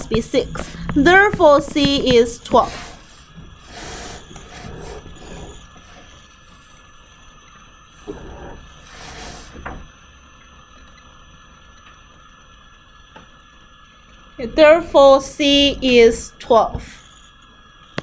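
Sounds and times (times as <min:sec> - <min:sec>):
faint steady hum: 0:00.0 - 0:18.0
rustling and scraping: 0:01.4 - 0:06.3.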